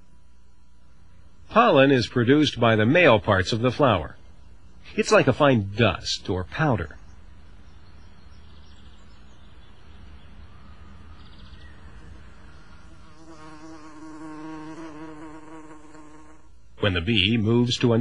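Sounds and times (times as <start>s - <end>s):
bee buzzing: 11.7s - 16.7s.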